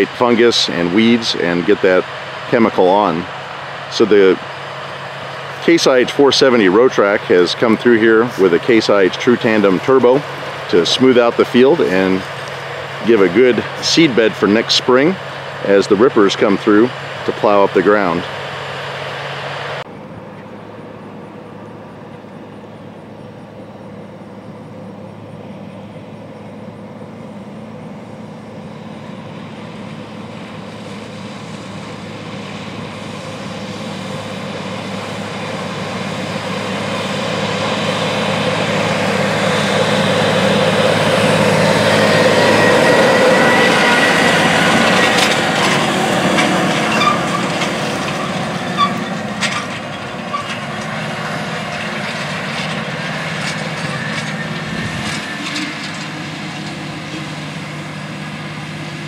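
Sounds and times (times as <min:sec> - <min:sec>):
tractor diesel engine under load: 0:00.0 - 0:59.0
metal clanks and rattles: 0:44.8 - 0:57.4.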